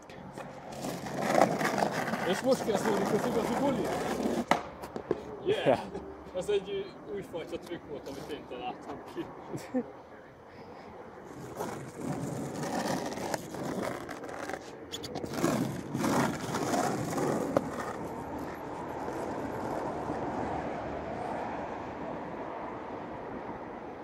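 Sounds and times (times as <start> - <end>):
skateboard wheels on asphalt: 0.1 - 6.0, 7.2 - 9.2, 10.8 - 24.0
skateboard knocks: 2.9 - 5.2.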